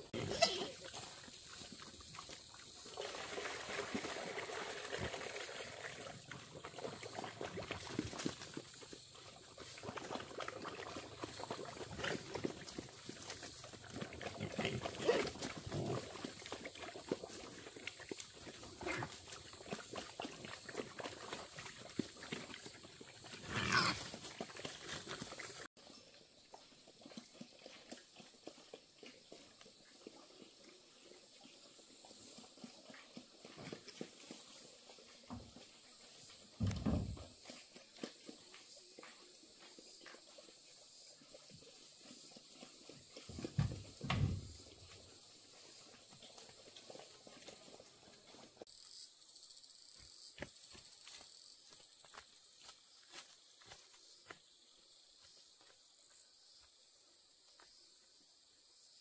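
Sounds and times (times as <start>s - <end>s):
farm animals calling: 0.0s - 0.8s.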